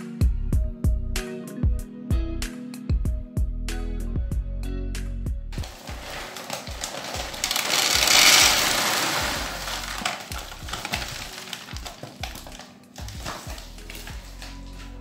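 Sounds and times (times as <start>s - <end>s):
grains pouring into plastic tub: 5.6s - 14.5s.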